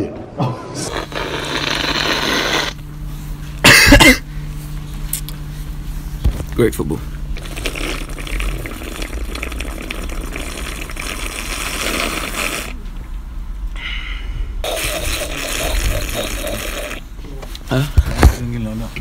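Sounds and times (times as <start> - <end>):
person slurping drink: 0.8 - 2.8, 7.4 - 12.8, 14.6 - 17.0.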